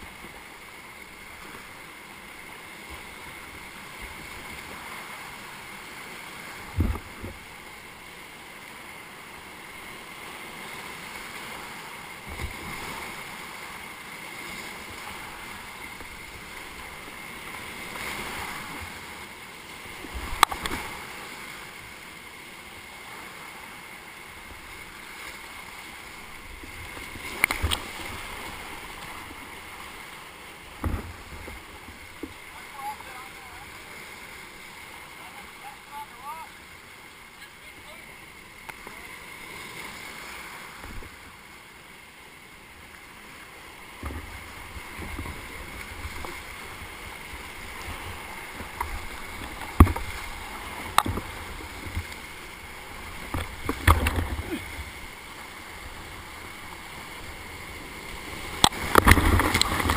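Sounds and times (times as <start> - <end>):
whitewater rapids rushing: 0.0 - 59.9
sharp knocks or splashes: 58.6 - 59.9.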